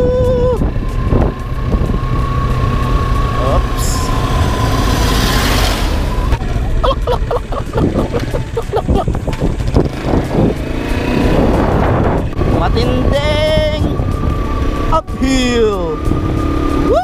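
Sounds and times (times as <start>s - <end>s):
motorcycle engine running: 0.0s - 17.0s
wind noise: 0.0s - 17.0s
large vehicle rushing past: 0.6s - 6.8s.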